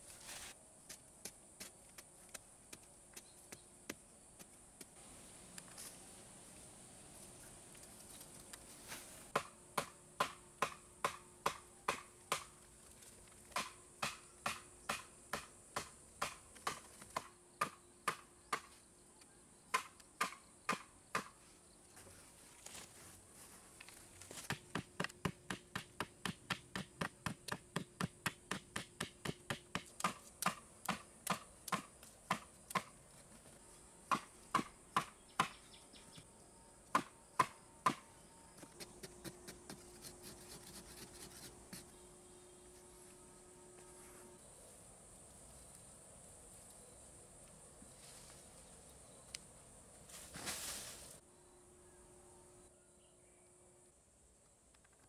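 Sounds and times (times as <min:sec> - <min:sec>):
digging tool chopping hard earth: 0:24.4 - 0:32.9.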